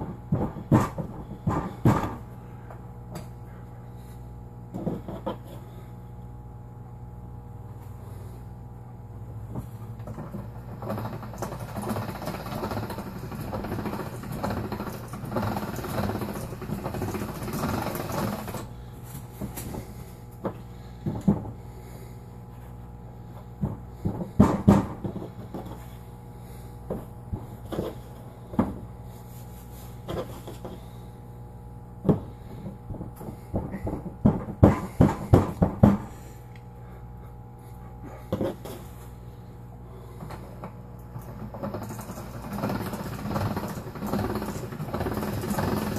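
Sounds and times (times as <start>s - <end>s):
pasta machine rattling: 10.0s - 18.8s, 40.1s - 45.9s
knocks and taps on countertop: 32.9s - 36.0s.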